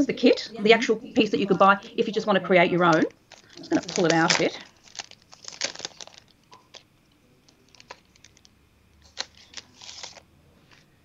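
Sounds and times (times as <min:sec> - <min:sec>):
plastic packet crinkling: 0:02.8 - 0:10.2.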